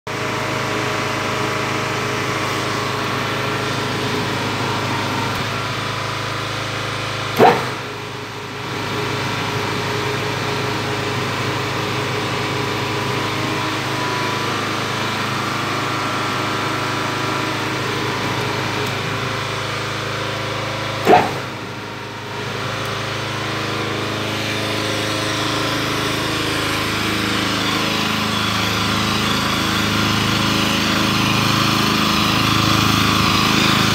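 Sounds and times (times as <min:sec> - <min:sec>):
motor humming: 0:00.1 - 0:33.9
sharp knocks: 0:07.4 - 0:07.9, 0:21.0 - 0:21.6.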